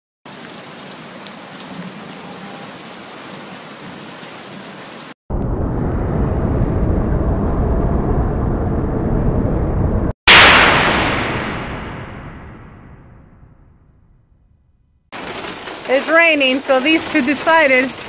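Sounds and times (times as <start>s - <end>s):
heavy rain pouring: 0.3s - 5.2s, 15.1s - 18.0s
thunder rumble: 5.3s - 18.0s.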